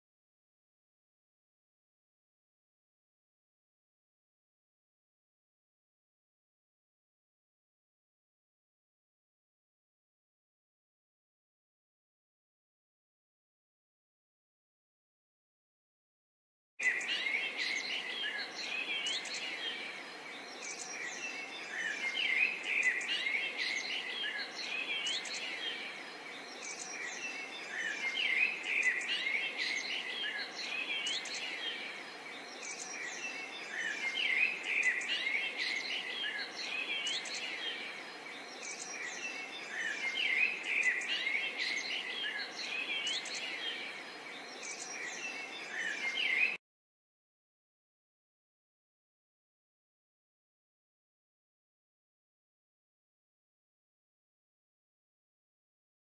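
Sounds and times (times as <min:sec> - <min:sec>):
small birds chirping: 0:16.8 - 0:46.6.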